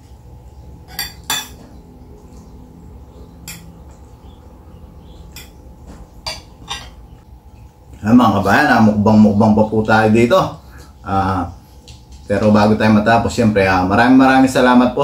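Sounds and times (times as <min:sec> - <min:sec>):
cutlery clinking on a plate: 0:00.9 - 0:01.8, 0:03.4 - 0:03.7, 0:06.2 - 0:07.0.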